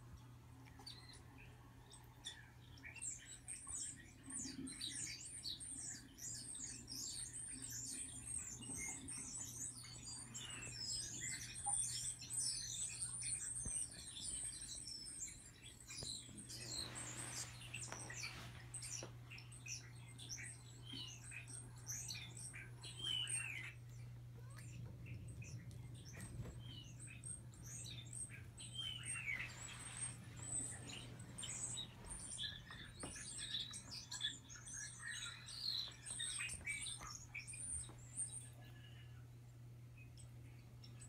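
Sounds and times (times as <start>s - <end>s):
songbirds chirping from speakers: 0.0s - 41.0s
steady low hum: 5.5s - 41.0s
soft rustle: 15.9s - 19.4s, 29.0s - 33.5s.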